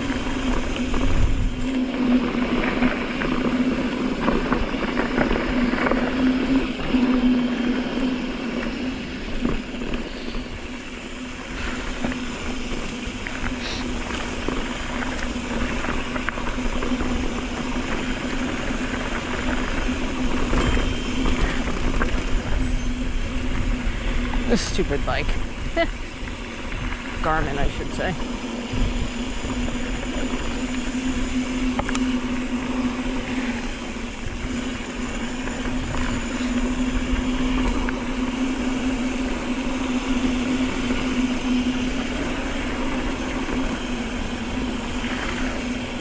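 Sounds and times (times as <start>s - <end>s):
bike clicks and rattles: 0.0s - 46.0s
bike tyres on dirt trail: 0.0s - 46.0s.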